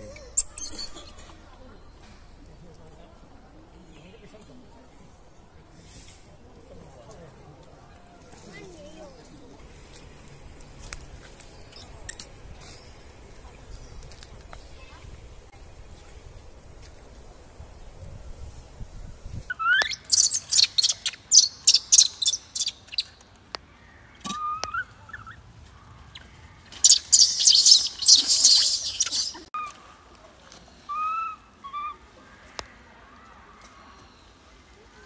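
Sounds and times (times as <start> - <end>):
baby monkey screaming: 0.1 - 1.1, 19.6 - 22.7, 26.8 - 29.7.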